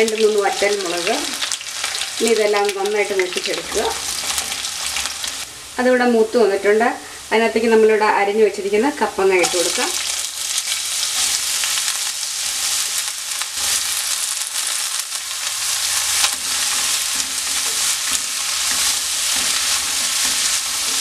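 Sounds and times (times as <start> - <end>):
hot oil sizzling in a wok: 0.0 - 6.6, 9.3 - 21.0
wooden spatula scraping a pan: 15.6 - 21.0.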